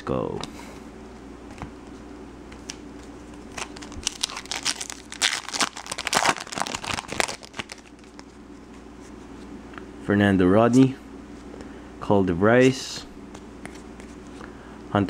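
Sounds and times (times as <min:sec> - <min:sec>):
foil wrapper crinkling and tearing: 0:03.5 - 0:08.4.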